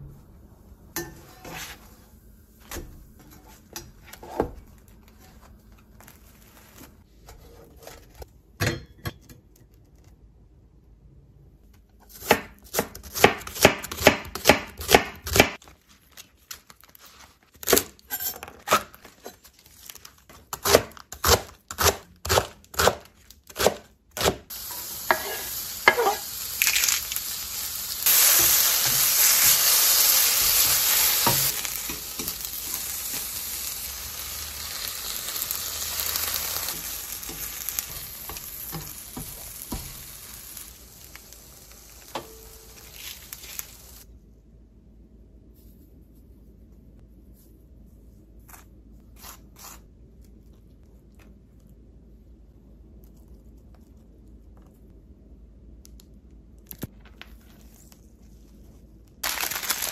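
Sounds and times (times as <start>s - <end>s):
knife chopping on wooden board: 12.2s - 15.6s
vegetables sizzling in frying pan: 24.5s - 44.0s, 59.2s - 59.9s
spatula stirring: 25.1s - 26.2s.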